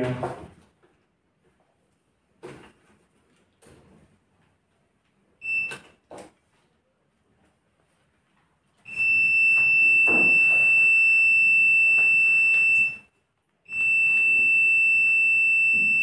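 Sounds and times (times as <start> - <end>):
multimeter continuity beep: 5.4 - 5.9, 8.9 - 13.1, 13.7 - 16.0.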